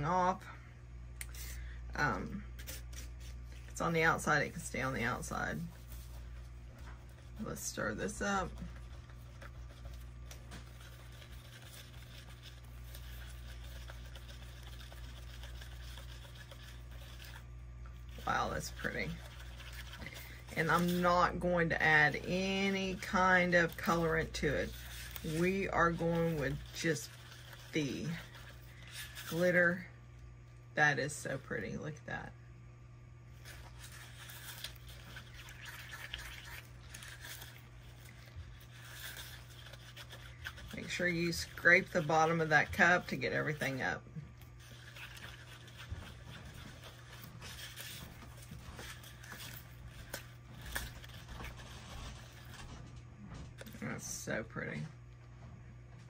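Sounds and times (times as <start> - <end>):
steady low hum: 0.0 - 56.0
stick scraping in a cup: 7.0 - 29.8, 33.4 - 52.7.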